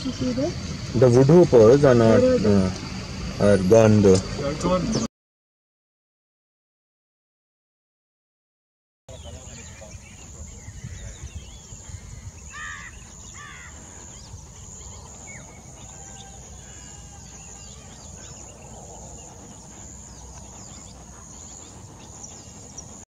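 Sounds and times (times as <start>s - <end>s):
bird calls: 0.0s - 5.1s, 9.1s - 23.0s
low rumble: 0.0s - 5.1s.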